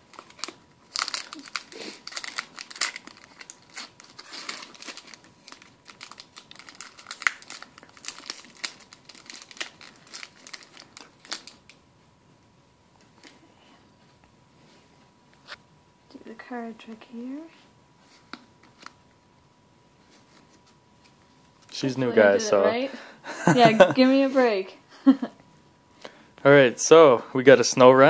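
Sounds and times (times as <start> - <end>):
foil wrapper tearing and crinkling: 0.0 - 11.8.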